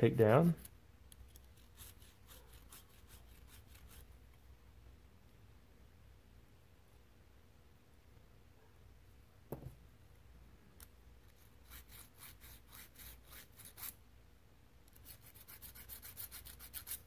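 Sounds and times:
needle file scraping steel: 0.4 - 4.1, 11.3 - 14.0, 14.9 - 17.0
soft knock: 9.5 - 9.8.

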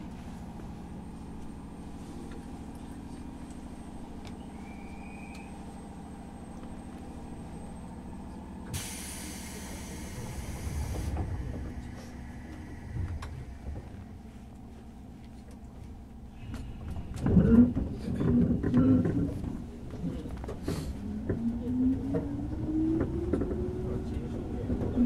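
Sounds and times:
train car equipment hum: 0.0 - 25.0
compressed air hiss: 8.7 - 11.2
low rumble: 9.6 - 25.0.

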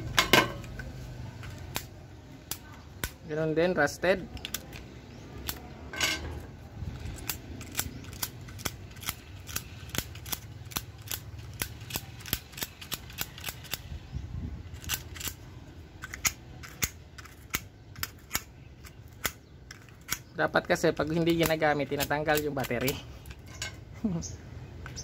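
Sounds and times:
sharp irregular clicks: 7.0 - 13.9.

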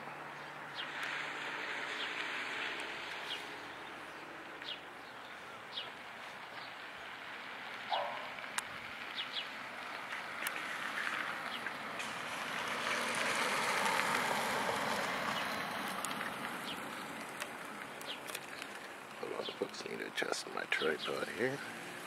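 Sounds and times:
vehicle passing by: 0.0 - 22.0
bird chirps: 7.9 - 8.3.

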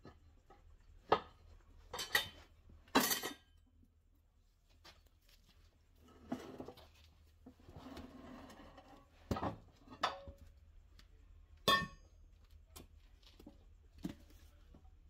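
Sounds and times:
ringing metal clang: 11.7 - 12.0.

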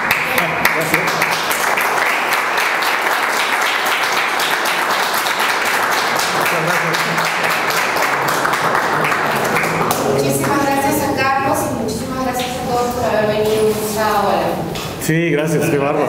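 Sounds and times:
audience applauding: 0.0 - 10.9.

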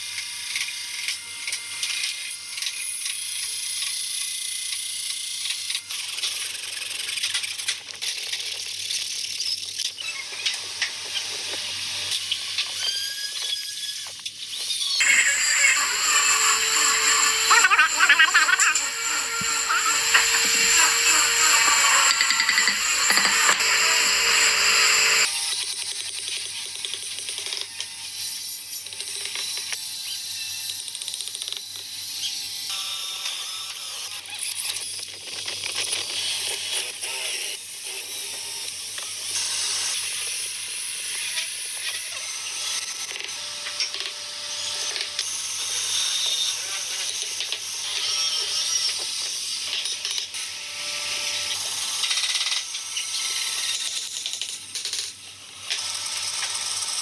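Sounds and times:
power drill boring into wood: 8.6 - 26.2, 35.6 - 55.0, 55.6 - 57.0.

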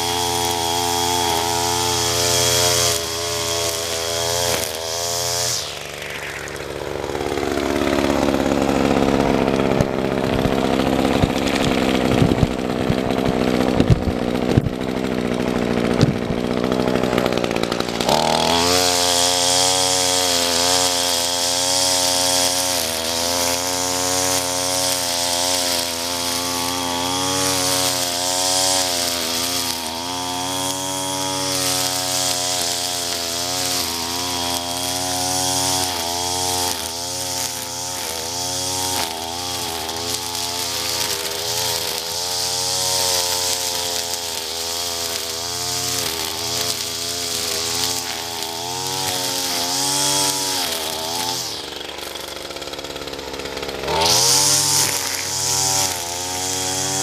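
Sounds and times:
string trimmer engine cutting grass: 0.0 - 57.0
sharp knocks: 15.9 - 16.4.

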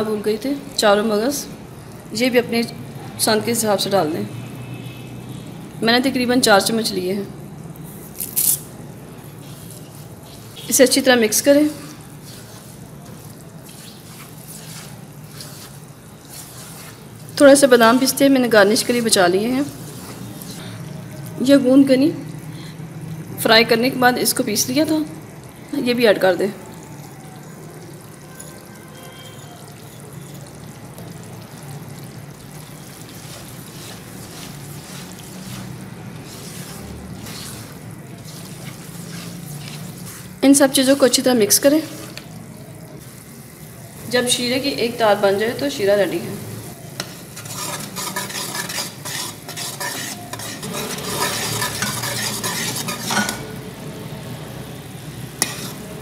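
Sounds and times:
thick mixture bubbling and sputtering: 8.9 - 17.8, 18.4 - 21.5, 24.2 - 44.2, 46.4 - 56.0
spatula stirring in a pan: 9.2 - 21.3, 28.0 - 45.0, 45.6 - 56.0
metal spoon scraping steel pan: 47.0 - 53.5, 55.4 - 55.9.

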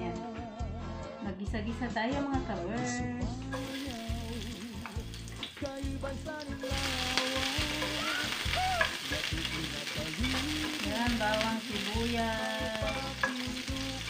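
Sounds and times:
onions sizzling in a pot: 3.5 - 14.0.

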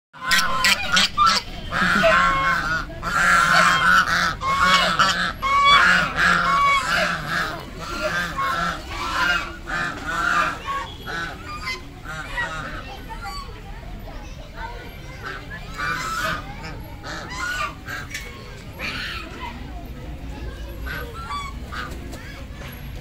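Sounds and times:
geese honking: 0.2 - 13.5, 15.2 - 18.1, 20.8 - 22.0.

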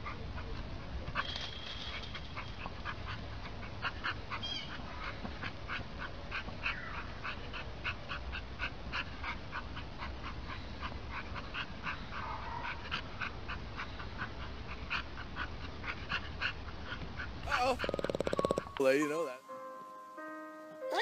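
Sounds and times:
dog panting: 0.0 - 18.9
dog whimpering: 17.4 - 19.3.

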